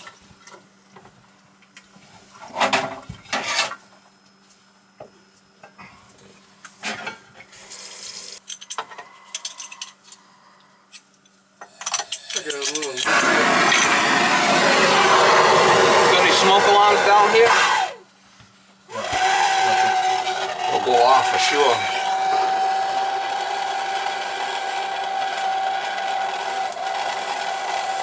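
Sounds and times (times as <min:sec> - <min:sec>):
torch burning with loud hiss: 0:11.7 - 0:18.0, 0:19.1 - 0:28.0.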